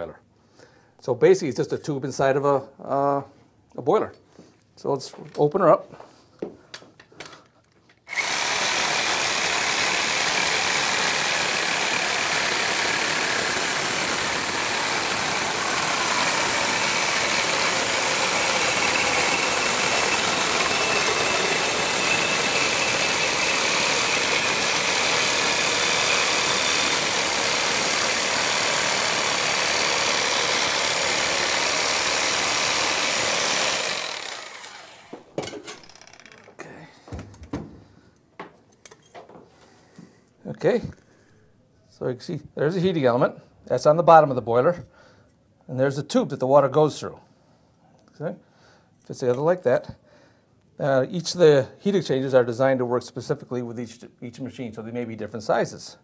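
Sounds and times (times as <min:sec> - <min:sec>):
reciprocating saw cutting metal: 0:08.1 - 0:36.3.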